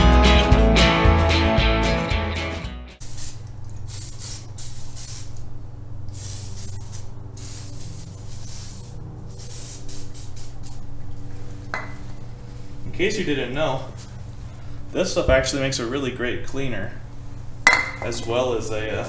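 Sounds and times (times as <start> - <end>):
aerosol spray hissing: 3.0 - 5.4, 6.1 - 10.8.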